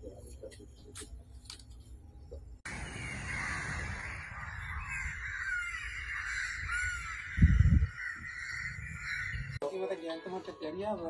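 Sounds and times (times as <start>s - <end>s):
birds calling: 0.0s - 9.6s
crows cawing: 2.7s - 9.6s.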